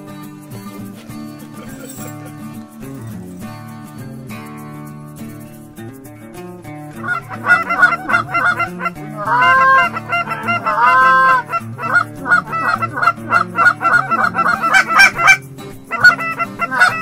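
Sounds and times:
background music with low bass: 0.0 - 17.0
goose honking: 7.0 - 17.0.

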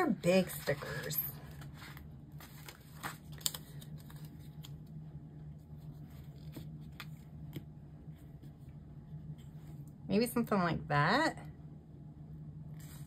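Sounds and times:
low steady hum: 0.0 - 13.0
paper handling clicks: 1.9 - 4.9.

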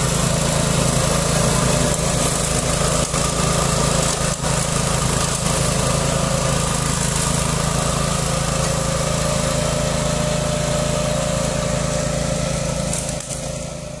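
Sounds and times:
small engine running under load: 0.0 - 14.0.

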